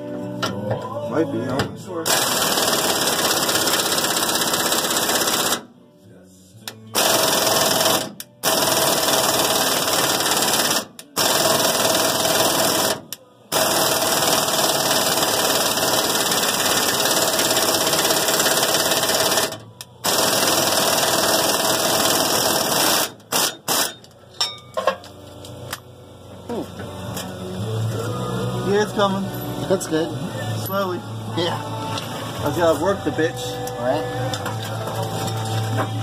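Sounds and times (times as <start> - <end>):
pneumatic impact wrench hammering: 2.1 - 5.6, 7.0 - 25.0.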